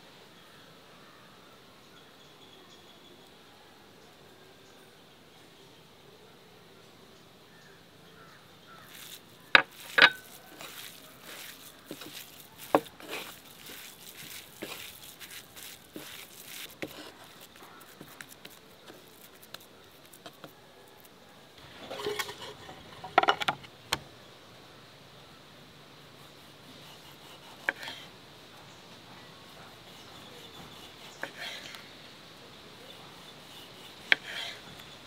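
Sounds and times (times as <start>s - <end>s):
hands squishing minced meat: 8.8s - 20.6s.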